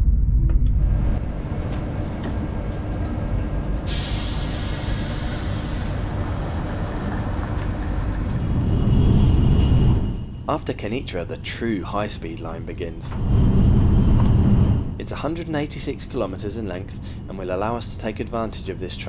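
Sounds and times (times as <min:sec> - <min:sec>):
train rumbling: 0:00.0 - 0:19.0
sharp hiss: 0:03.8 - 0:06.1.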